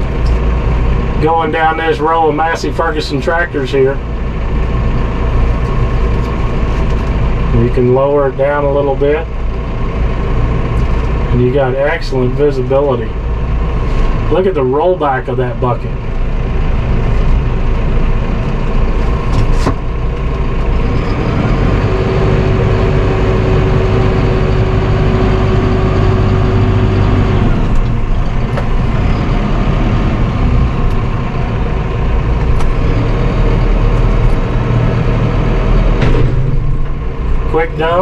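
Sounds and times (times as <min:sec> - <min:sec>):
tractor diesel engine running: 0:00.0 - 0:38.0
steady hydraulic whine: 0:11.7 - 0:38.0.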